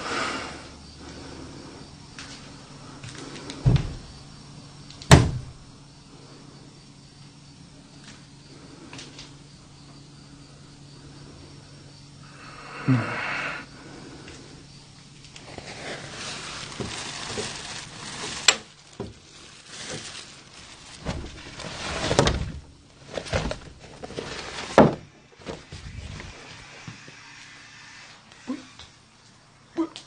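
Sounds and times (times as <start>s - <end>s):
clothes and plastic covers rustling: 15.1s - 27.1s.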